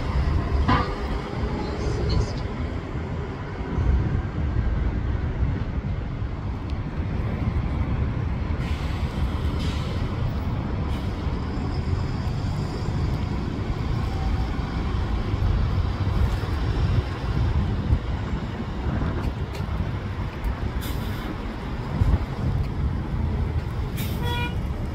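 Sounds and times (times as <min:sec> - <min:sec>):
bus engines rumbling: 0:00.0 - 0:24.9
street traffic: 0:00.0 - 0:24.9.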